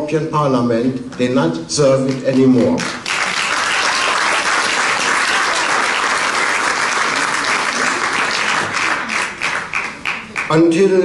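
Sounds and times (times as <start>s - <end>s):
audience applauding: 2.1s - 10.8s.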